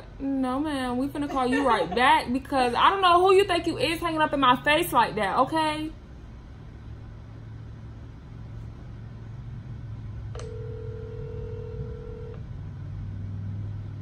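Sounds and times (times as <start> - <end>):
low steady hum: 0.0 - 14.0
phone ringback tone: 10.4 - 12.4.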